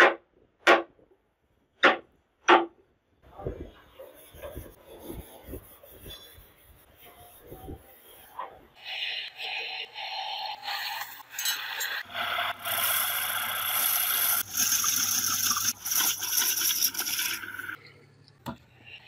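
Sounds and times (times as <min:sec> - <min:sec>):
lathe tool scraping wood: 0:10.9 - 0:14.7.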